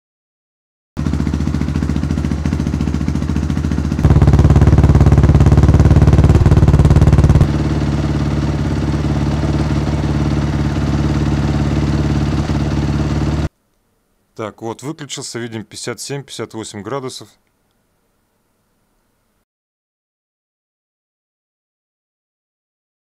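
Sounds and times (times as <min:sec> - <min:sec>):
motorcycle engine idling: 0:01.0 - 0:13.5.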